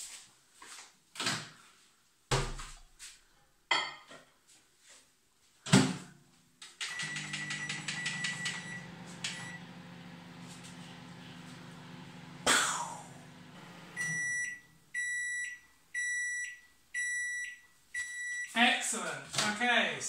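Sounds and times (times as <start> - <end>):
keypad beeps: 6.8 - 9.6, 14.0 - 18.5
microwave oven humming: 6.9 - 14.7.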